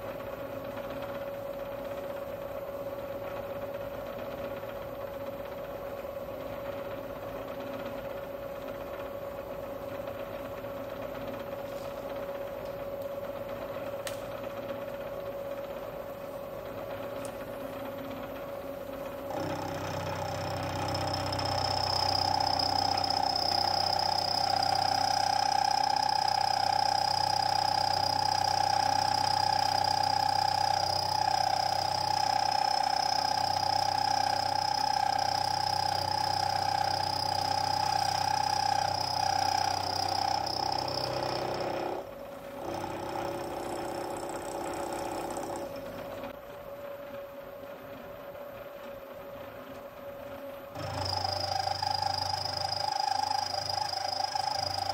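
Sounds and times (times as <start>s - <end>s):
milling machine spindle running: 0.0s - 46.3s, 50.6s - 54.9s
high-pitched metal cutting whine: 19.3s - 42.0s, 50.8s - 54.9s.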